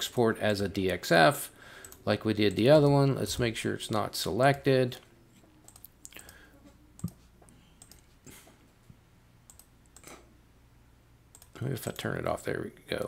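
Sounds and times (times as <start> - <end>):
low electrical hum: 0.0 - 13.0
computer mouse clicks: 5.6 - 6.4, 7.0 - 7.2, 7.8 - 8.1, 9.5 - 10.2, 11.3 - 12.1.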